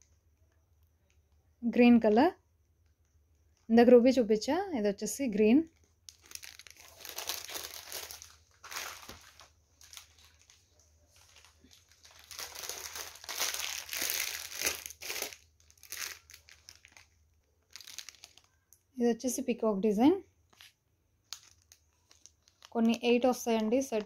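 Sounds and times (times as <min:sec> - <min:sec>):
plastic bags crinkling: 0:05.6 - 0:18.8, 0:20.5 - 0:24.0.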